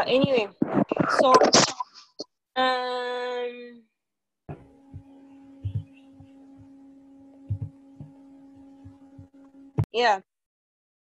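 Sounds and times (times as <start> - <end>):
steady hum: 0.0 - 3.6, 4.5 - 10.1
soft low thumps: 4.5 - 10.0
steady held tone: 4.5 - 10.0.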